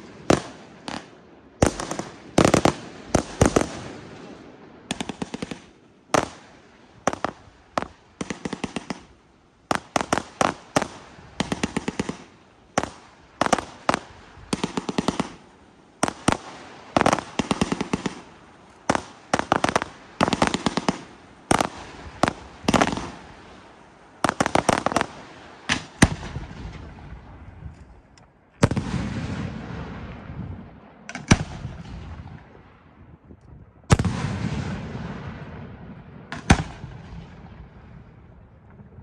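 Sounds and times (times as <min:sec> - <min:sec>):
fireworks cracking and popping: 0:00.0 - 0:04.1, 0:04.9 - 0:27.9
heavy fireworks bangs rumbling: 0:28.6 - 0:32.6, 0:33.9 - 0:39.0.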